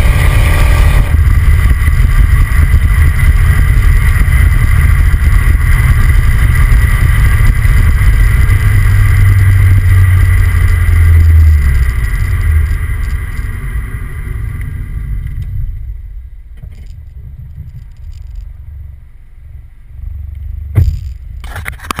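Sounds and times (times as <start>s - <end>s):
car exhaust rumble with whine: 0.0s - 22.0s
sharp knock: 20.8s - 21.2s.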